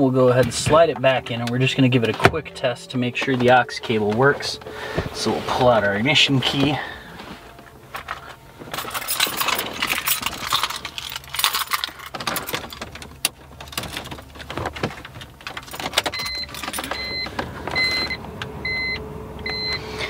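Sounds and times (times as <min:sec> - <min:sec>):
car keys jangling: 0:07.9 - 0:17.4
key turning in ignition: 0:07.9 - 0:17.5.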